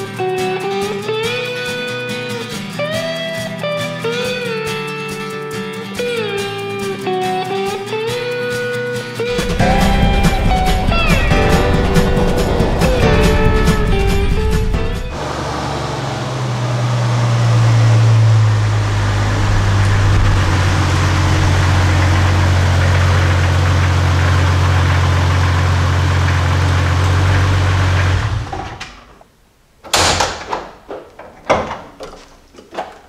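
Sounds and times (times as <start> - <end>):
car engine running: 9.3 - 28.6.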